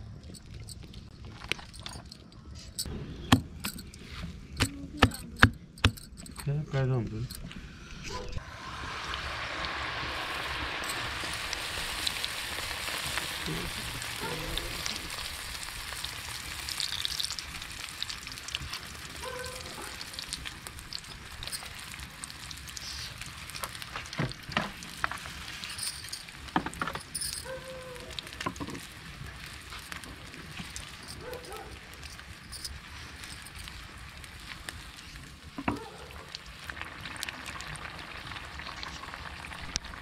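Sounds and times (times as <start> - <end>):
batter sizzling in hot oil: 8.4 - 35.6, 36.2 - 40.0.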